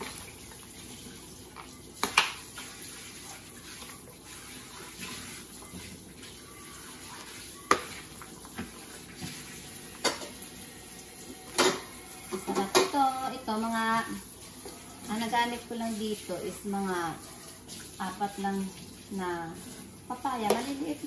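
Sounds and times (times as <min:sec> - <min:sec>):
tap water running into sink: 0:00.0 - 0:13.4
utensils and dishes clinking: 0:05.6 - 0:10.6, 0:11.3 - 0:13.4.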